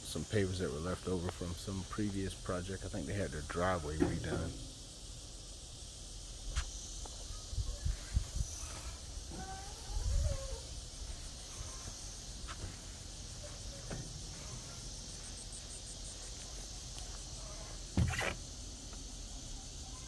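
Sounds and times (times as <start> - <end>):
insects chirring: 0.0 - 20.0
thump: 4.0 - 4.7, 13.8 - 14.2, 18.0 - 18.4.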